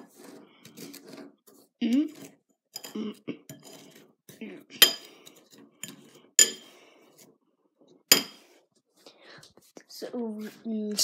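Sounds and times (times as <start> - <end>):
spoon scraping in ceramic bowl: 0.0 - 7.3, 8.1 - 8.6.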